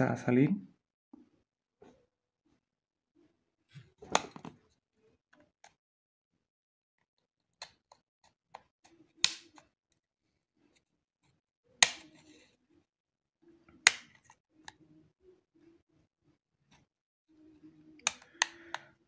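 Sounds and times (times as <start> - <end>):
plastic clips snapping loose: 13.8 - 14.2, 18.0 - 18.9.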